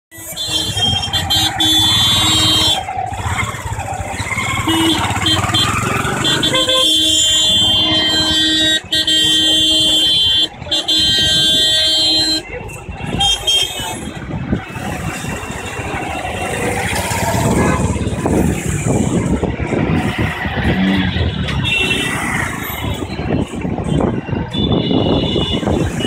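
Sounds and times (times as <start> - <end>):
vehicle horns honking: 0.1 - 3.0, 4.3 - 18.4, 20.6 - 26.0
rickshaw engines running: 0.1 - 26.0.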